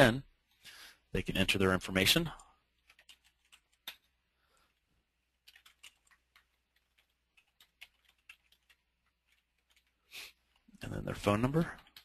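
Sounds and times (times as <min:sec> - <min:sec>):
faint keyboard keystrokes: 0:04.7 - 0:10.7.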